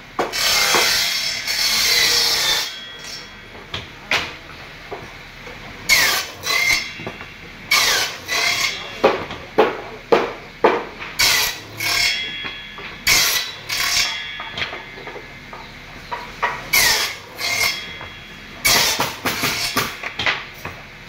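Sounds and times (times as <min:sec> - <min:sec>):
wooden boards scraping on steel: 0:00.3 - 0:03.4, 0:05.9 - 0:09.2, 0:11.0 - 0:20.8
wooden boards clacking: 0:05.9 - 0:20.9.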